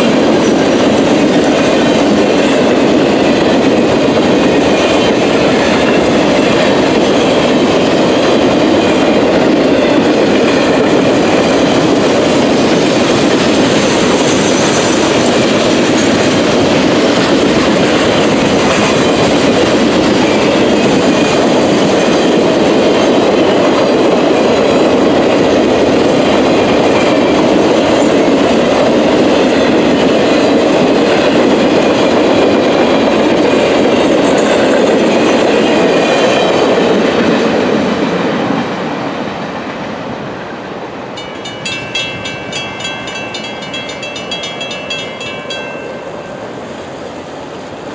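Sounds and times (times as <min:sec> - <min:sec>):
train wheels clattering over rails: 0:00.0 - 0:39.9
crossing bells ringing: 0:41.2 - 0:47.5.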